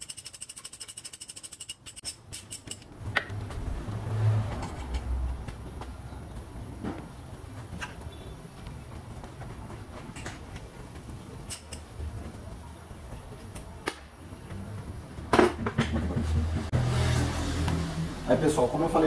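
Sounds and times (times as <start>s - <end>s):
metallic clicks of hand tools: 0.0s - 3.3s.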